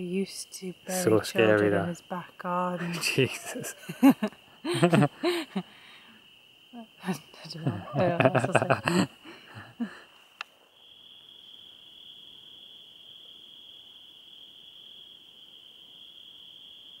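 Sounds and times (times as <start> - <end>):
crickets trilling: 0.0 - 17.0
person's voice: 0.8 - 2.0, 2.6 - 3.8, 7.0 - 9.1.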